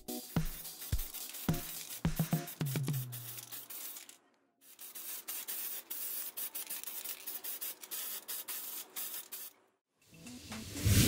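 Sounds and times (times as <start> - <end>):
spray paint hissing: 0.0 - 9.6.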